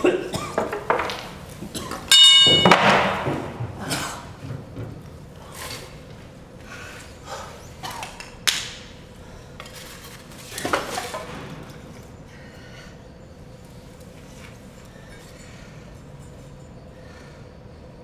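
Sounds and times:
knocks and clinks of small objects: 0.6s - 5.1s.

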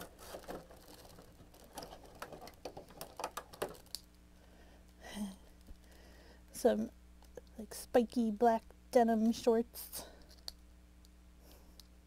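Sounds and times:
plastic packaging crinkling: 0.0s - 4.1s.

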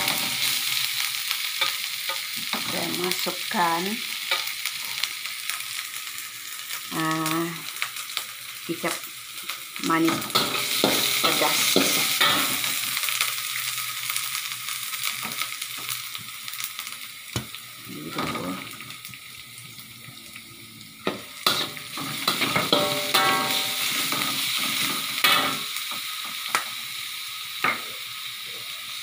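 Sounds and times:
paste sizzling in hot oil: 0.0s - 29.0s
metal spatula scraping wok: 10.1s - 12.8s, 21.4s - 25.6s.

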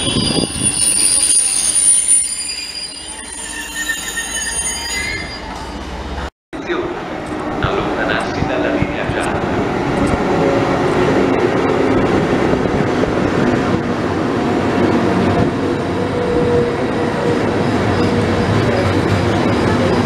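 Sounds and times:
train wheels rumbling on rails: 5.4s - 20.0s.

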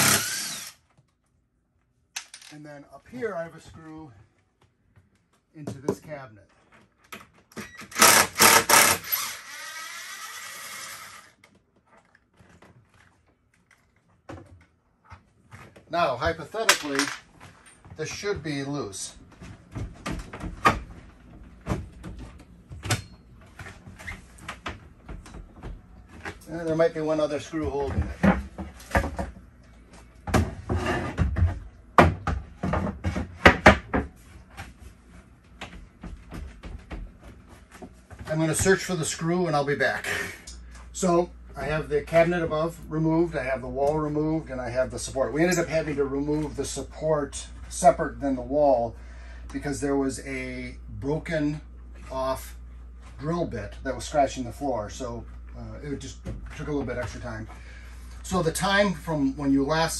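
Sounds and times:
cordless drill whirring: 0.0s - 0.8s, 7.9s - 11.4s
wooden knocks and thuds: 30.2s - 34.1s.

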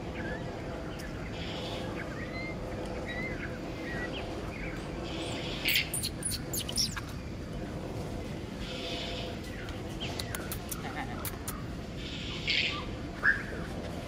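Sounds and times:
low background hum: 0.0s - 14.0s
baby monkey squealing: 5.7s - 7.0s.

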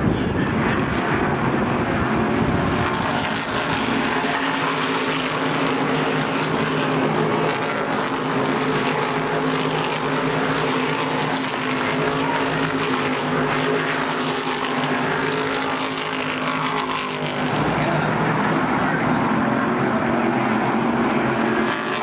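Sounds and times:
race car engines droning: 0.0s - 22.0s.

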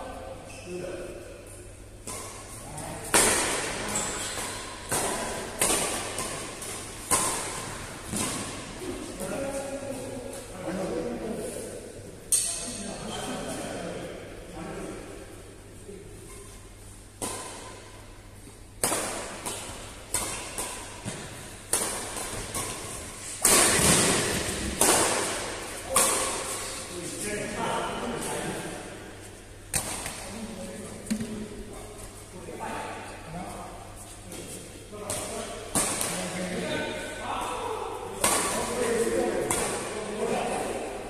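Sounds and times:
badminton racket hitting shuttlecock: 2.0s - 8.6s, 18.8s - 26.8s.

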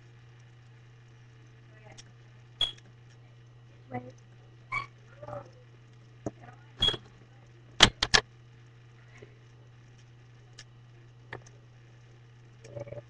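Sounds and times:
steady low hum: 0.0s - 13.0s
sharp clicks and knocks: 7.8s - 8.3s.

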